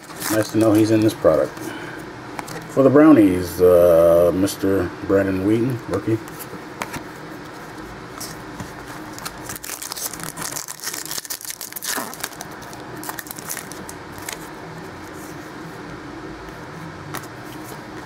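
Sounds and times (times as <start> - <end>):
foil wrapper crinkling and tearing: 0.0 - 1.2, 9.1 - 14.5.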